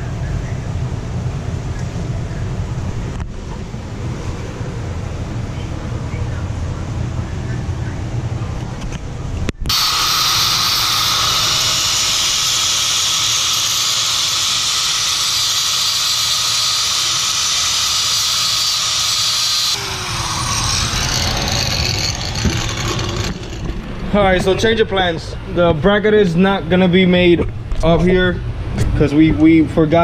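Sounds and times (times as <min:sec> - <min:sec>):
angle grinder grinding metal: 0:09.7 - 0:24.6
grinder disc winding down: 0:09.7 - 0:24.6.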